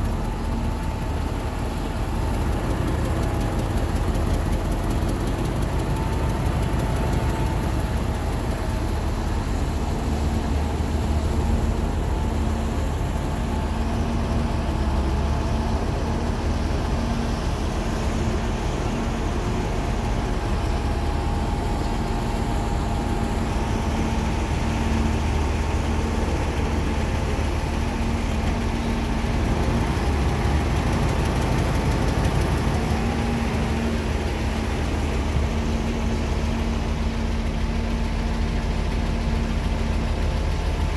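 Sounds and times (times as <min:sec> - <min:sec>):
diesel engines humming: 0:00.0 - 0:40.9.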